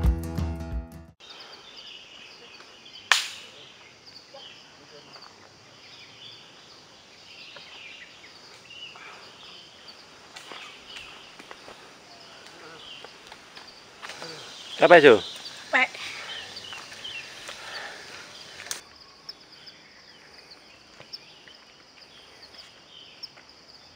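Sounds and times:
sharp click: 3.1s - 3.5s
high chirping calls: 5.7s - 23.4s.

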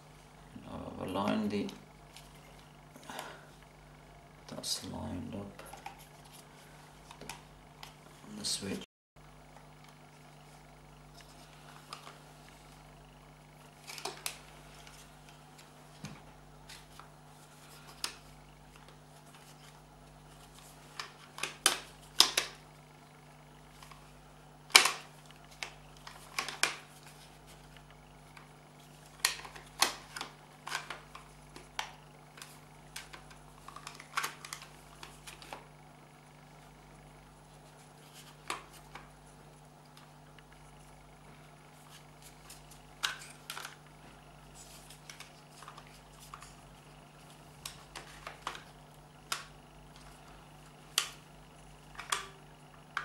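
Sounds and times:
plastic parts clicking and knocking: 20.9s - 22.6s, 24.7s - 26.8s, 29.2s - 35.6s, 51.9s - 53.0s.

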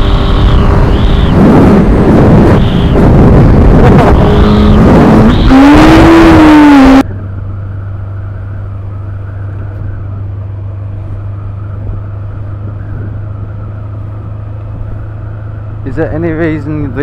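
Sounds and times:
wind noise on microphone: 0.0s - 7.3s, 11.0s - 15.2s
motorcycle engine: 0.0s - 17.0s.

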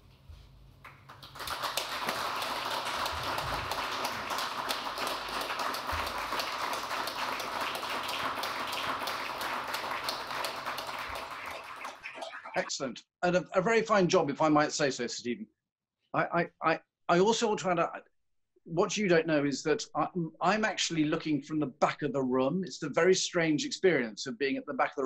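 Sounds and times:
audience applauding: 0.9s - 12.7s.

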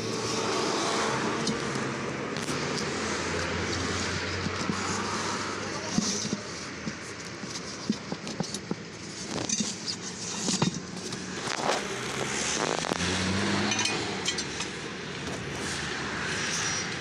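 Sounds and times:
knocks and metallic clinks: 12.1s - 15.4s.

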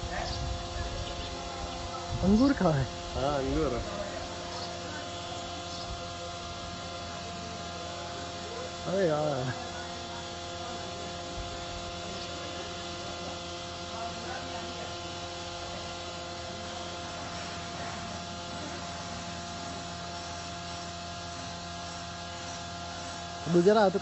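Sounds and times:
electrical hum: 0.0s - 24.0s.

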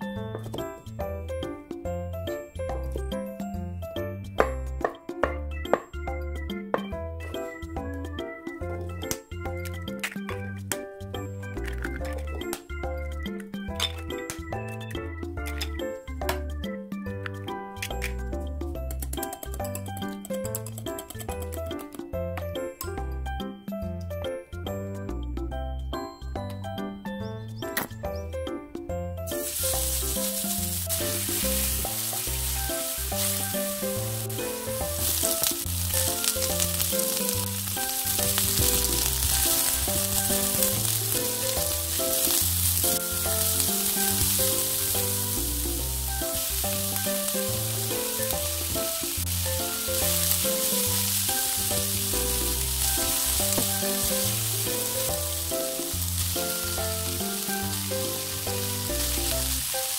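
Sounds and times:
background music melody: 0.0s - 59.9s
spatula stirring in pan: 29.3s - 59.6s
food sizzling in hot oil: 29.3s - 59.9s.

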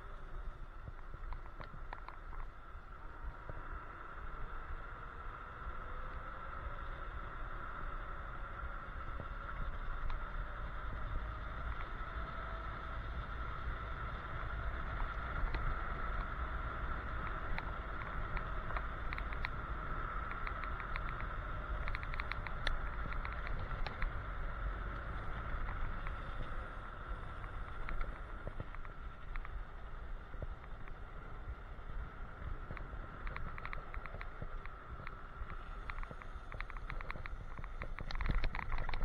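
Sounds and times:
wind rumbling on microphone: 0.0s - 39.0s
light clicks and rattles: 17.0s - 24.2s, 27.3s - 29.6s, 32.6s - 39.0s.

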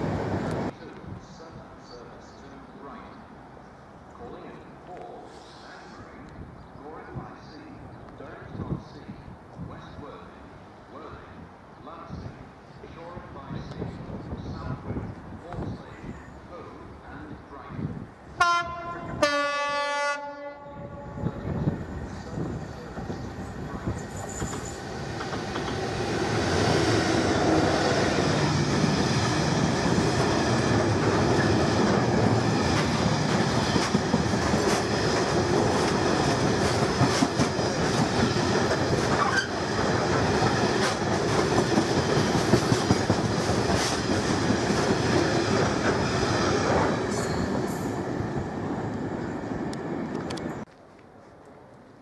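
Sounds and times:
diesel locomotive passing: 0.0s - 4.4s, 18.2s - 50.7s.

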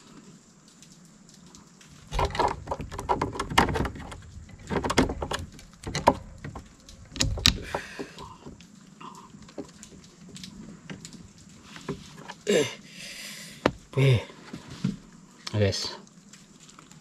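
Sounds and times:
handling knocks and rustles: 1.8s - 8.7s, 9.4s - 12.4s.

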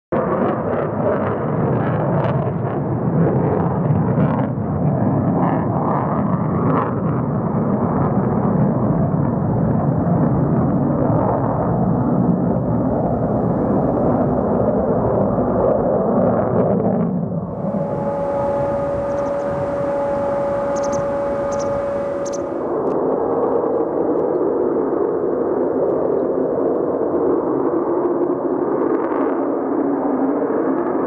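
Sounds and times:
fighter jet flying overhead: 17.1s - 22.6s.

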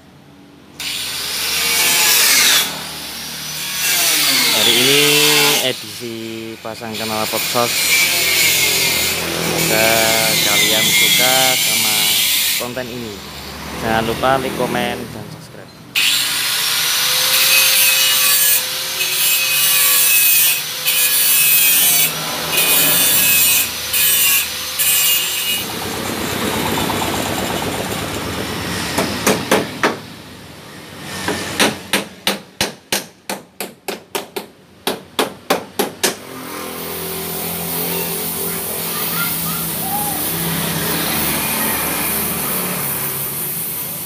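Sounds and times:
angle grinder cutting metal: 0.8s - 15.1s, 16.0s - 26.6s, 36.2s - 44.0s.

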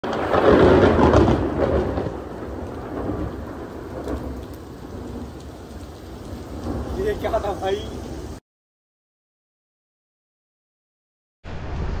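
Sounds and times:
steady rain: 0.0s - 8.4s
thunder rumbling: 0.0s - 8.4s, 11.5s - 12.0s.

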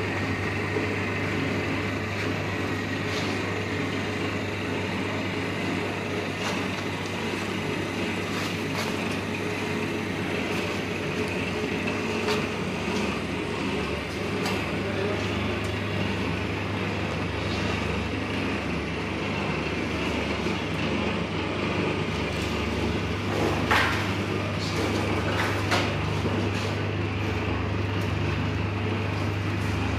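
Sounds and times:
rotisserie machine humming: 0.0s - 29.9s.

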